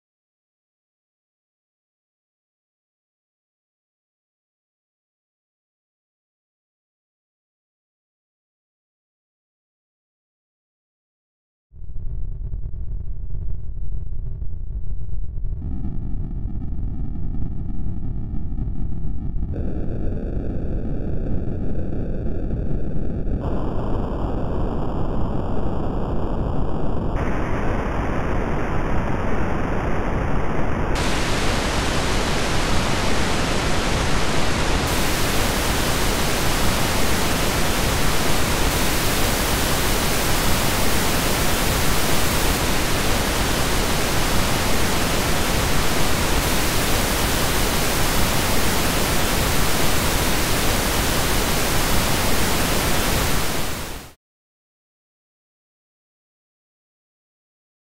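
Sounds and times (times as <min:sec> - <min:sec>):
synthetic pink noise hiss: 0:23.4 - 0:54.2.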